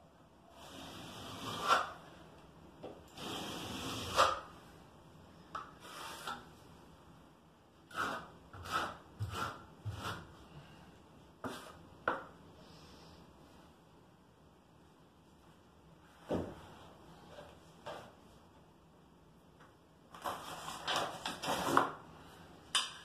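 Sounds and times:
trowel scraping mortar: 0.5s - 2.1s, 3.2s - 4.5s, 5.8s - 6.4s, 7.9s - 10.3s.

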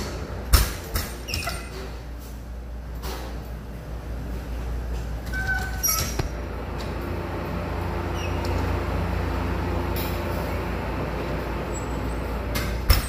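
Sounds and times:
low rumble of ship machinery: 0.0s - 13.0s.

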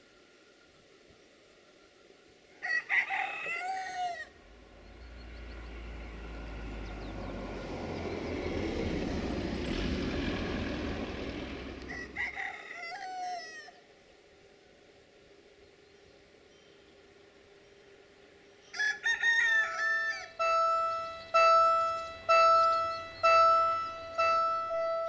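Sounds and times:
rooster crowing: 2.6s - 4.5s, 11.5s - 13.9s, 18.7s - 22.1s
low rumble: 4.4s - 12.2s.

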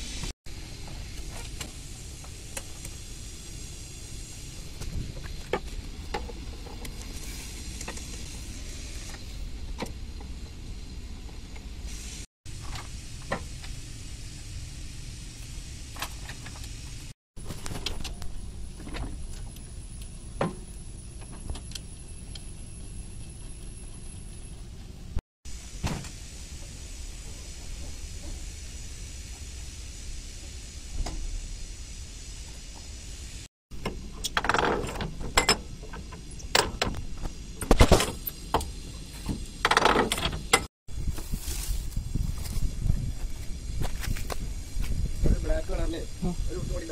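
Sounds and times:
parts clicking and knocking: 33.8s - 40.7s.

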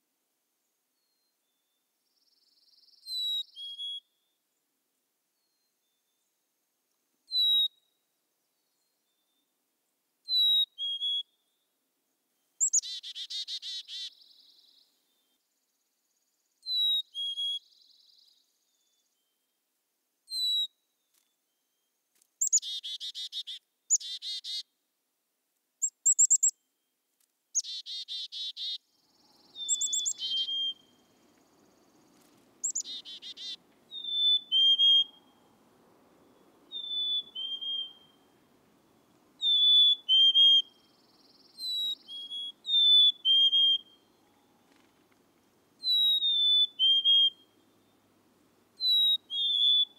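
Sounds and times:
buzzy bird calls: 29.4s - 31.0s, 32.1s - 35.4s, 48.8s - 49.9s.

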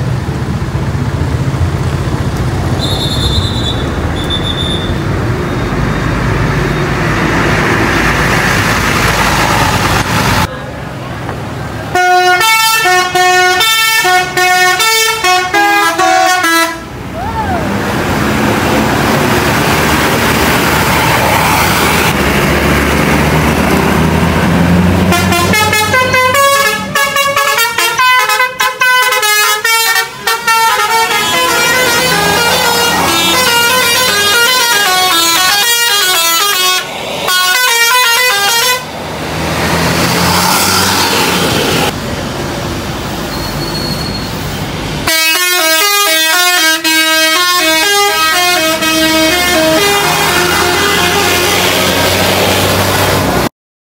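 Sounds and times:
bus diesel engine rumbling: 0.0s - 53.5s
bus horns playing tunes: 11.9s - 17.0s, 25.0s - 39.0s, 45.0s - 52.3s.

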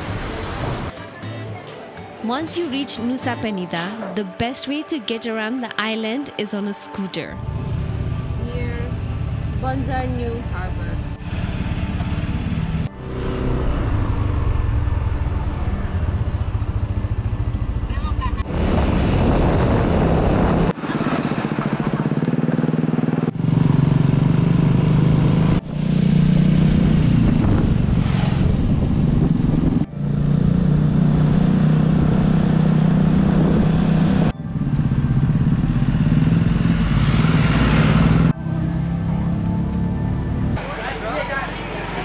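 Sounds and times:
motor scooter engine running: 20.8s - 27.7s.

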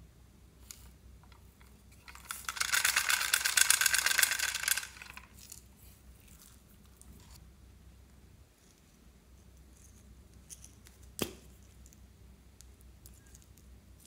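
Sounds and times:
flakes rattling in plastic toy: 2.0s - 5.7s.

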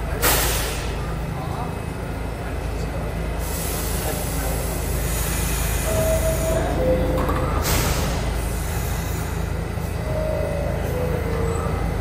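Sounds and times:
subway train low rumble: 0.0s - 12.0s
hiss of air from doors: 0.2s - 0.9s, 3.4s - 6.5s.

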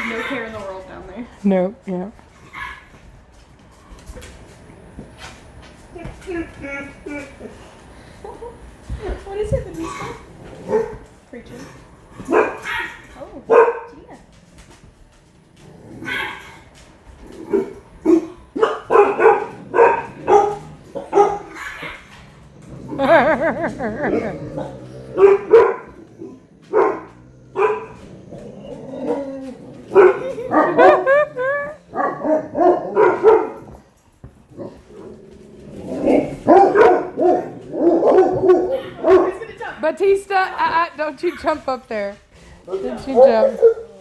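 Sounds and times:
dog barking: 10.7s - 11.0s, 12.3s - 14.0s, 17.5s - 22.0s, 25.2s - 25.9s, 26.7s - 28.0s, 29.9s - 31.2s, 31.9s - 33.6s, 36.4s - 39.4s, 43.2s - 44.0s.

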